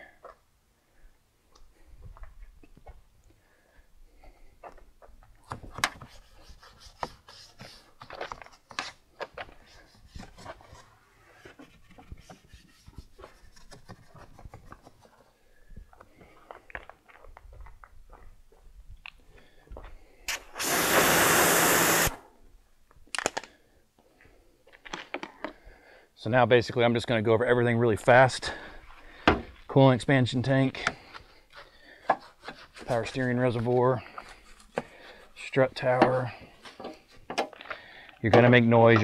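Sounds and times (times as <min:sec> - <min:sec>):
spray hissing: 0:20.6 - 0:22.2.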